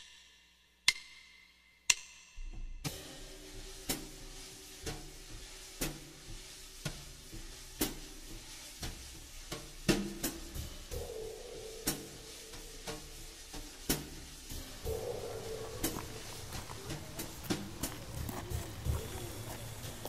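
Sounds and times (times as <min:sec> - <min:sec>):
sparse drum beat: 0:03.3 - 0:20.0
soft held low notes: 0:14.6 - 0:20.0.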